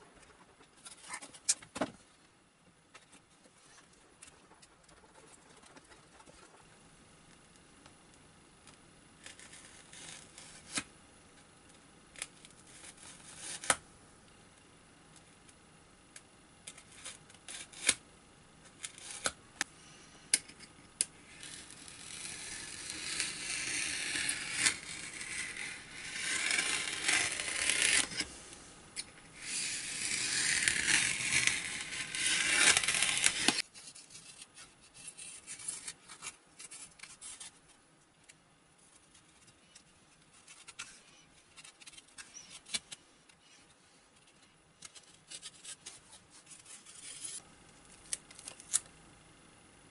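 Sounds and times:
foam being scraped and cut: 9.2s - 10.9s, 12.6s - 13.8s, 16.9s - 18.0s, 18.8s - 19.3s, 21.3s - 28.3s, 29.4s - 36.0s.

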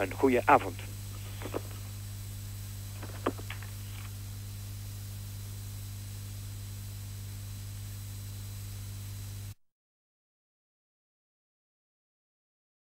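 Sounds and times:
low electrical hum and hiss: 0.0s - 9.6s.

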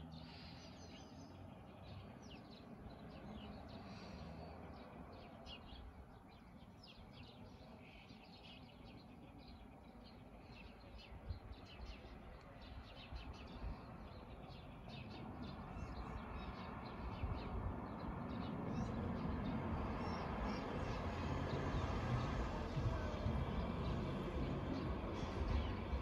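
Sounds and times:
small birds chirping: 0.0s - 26.0s
low background rumble: 18.7s - 26.0s.

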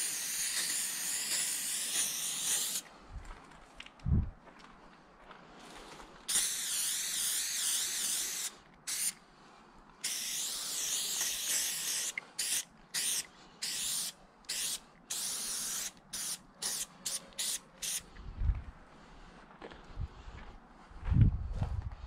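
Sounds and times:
spray paint can hissing: 0.0s - 2.8s, 6.3s - 9.2s, 10.0s - 18.0s.

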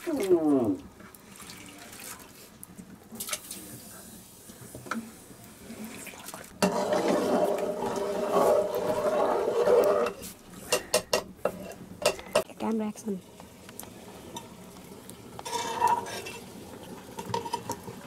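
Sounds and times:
metal utensil scraping a pot: 6.6s - 12.4s, 15.4s - 18.0s.

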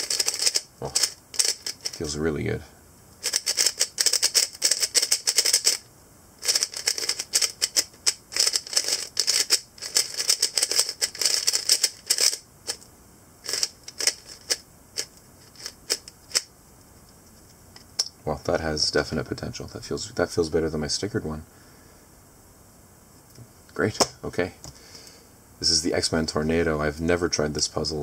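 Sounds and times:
puzzle cube clicking as turned: 0.0s - 2.0s, 3.2s - 5.8s, 6.4s - 12.8s, 13.5s - 16.5s.

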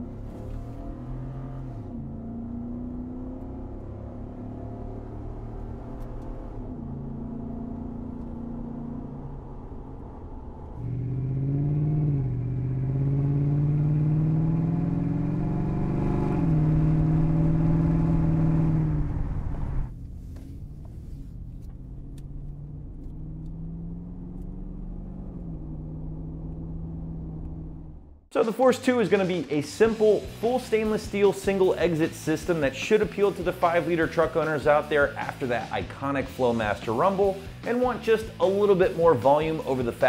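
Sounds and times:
truck engine exhaust rumble: 16.5s - 28.3s.

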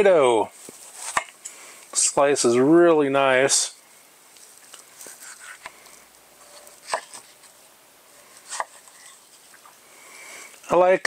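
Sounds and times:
knife slicing tomato: 5.0s - 5.8s, 6.4s - 7.6s, 8.3s - 9.6s.

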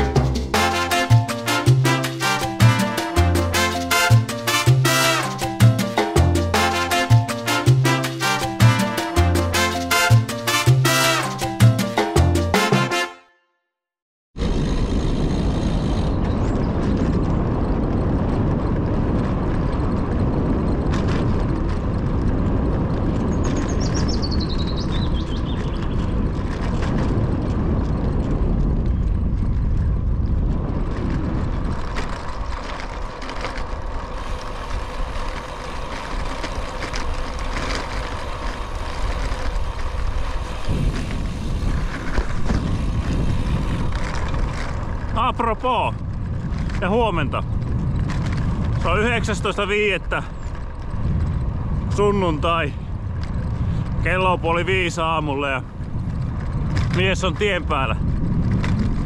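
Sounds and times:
road noise: 0.0s - 13.2s, 14.4s - 59.0s
wind rumble on microphone: 14.4s - 59.0s.

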